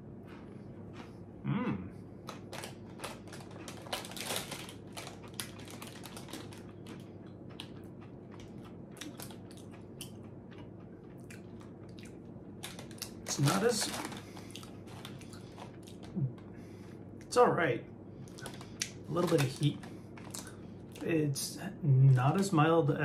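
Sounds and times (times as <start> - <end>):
person humming: 1.4 - 2.0
crunchy snack chewing: 2.2 - 16.2, 18.3 - 21.1.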